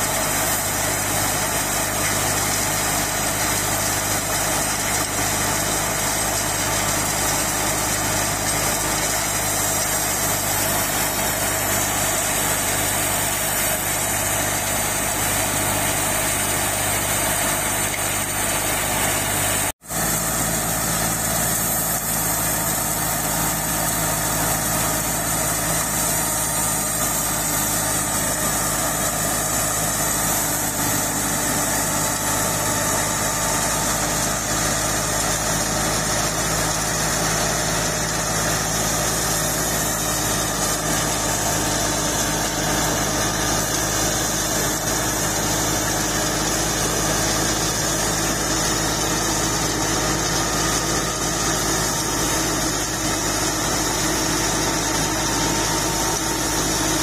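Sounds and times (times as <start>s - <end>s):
tractor engine and thresher droning: 0.0s - 57.0s.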